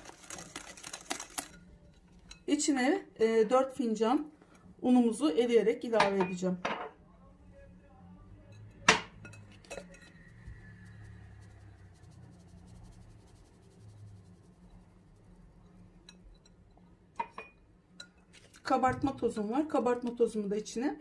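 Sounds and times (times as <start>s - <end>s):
faint low hum: 6.2s - 18.1s
kitchenware clinking on bowl: 8.5s - 10.4s, 15.9s - 19.2s.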